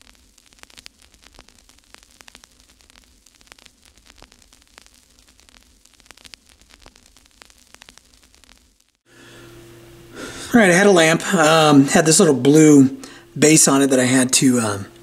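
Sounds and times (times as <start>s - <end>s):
crackling static: 0.0s - 15.0s
low steady hum: 9.1s - 15.0s.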